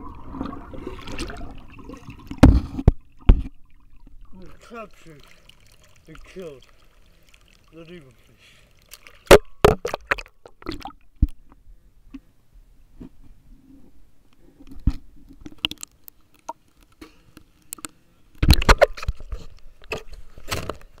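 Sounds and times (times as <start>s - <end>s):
underwater camera knocks and rustles: 2.2s - 4.2s, 14.7s - 21.0s.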